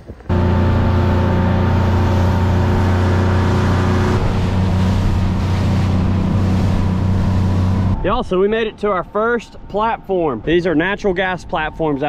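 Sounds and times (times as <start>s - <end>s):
outboard motor running: 0.3s - 8.0s
water rushing along hull: 0.3s - 12.0s.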